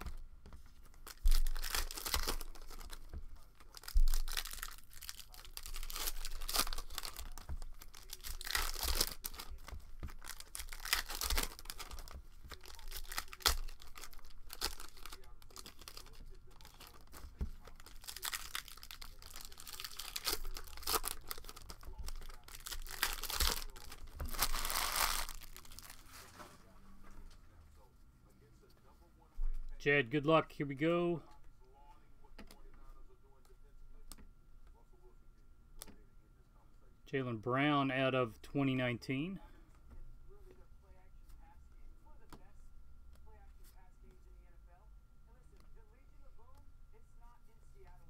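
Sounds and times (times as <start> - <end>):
cards shuffled by hand: 0.0 - 26.4
plastic wrappers crinkling and tearing: 0.8 - 26.2.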